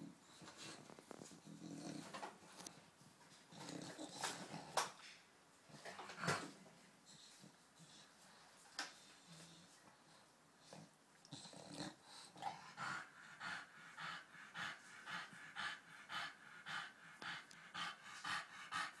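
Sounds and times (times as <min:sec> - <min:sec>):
dog panting hard: 0:12.1 - 0:19.0.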